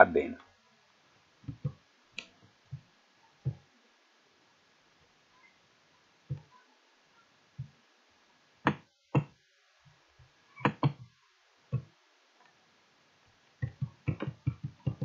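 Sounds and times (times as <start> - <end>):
computer mouse clicking: 13.6 - 15.0.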